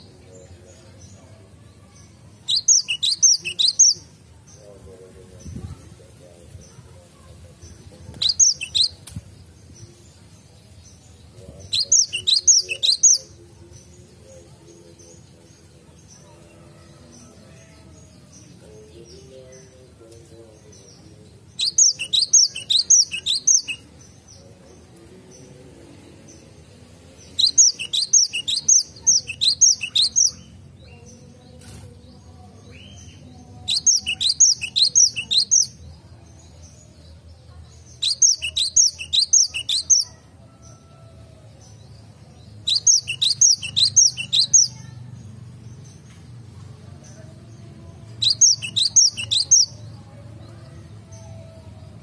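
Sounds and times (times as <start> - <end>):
bird singing high-pitched notes: 2.5 - 4.0, 11.8 - 13.3, 38.0 - 40.2, 42.6 - 44.8, 48.2 - 49.8.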